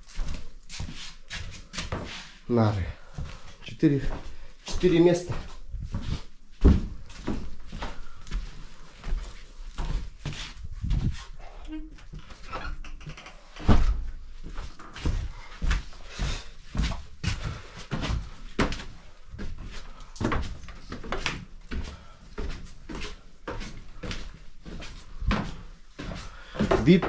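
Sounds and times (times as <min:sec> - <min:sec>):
footsteps on wooden floorboards: 0:00.0 - 0:27.0.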